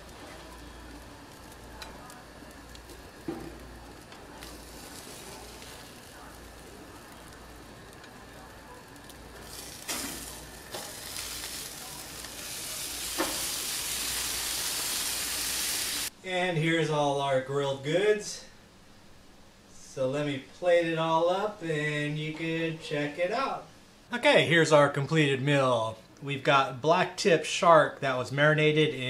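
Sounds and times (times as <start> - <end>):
fish sizzling on a grill: 0.0 - 16.1
metal spatula scraping grill: 9.4 - 13.6.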